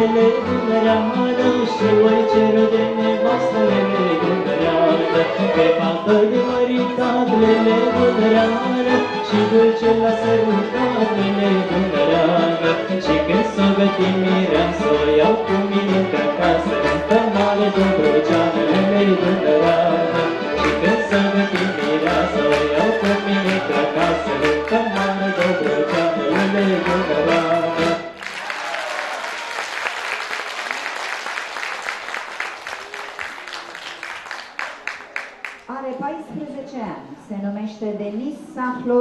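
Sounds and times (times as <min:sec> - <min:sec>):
folk orchestra playing: 0:00.0 - 0:28.2
audience applause: 0:28.2 - 0:35.7.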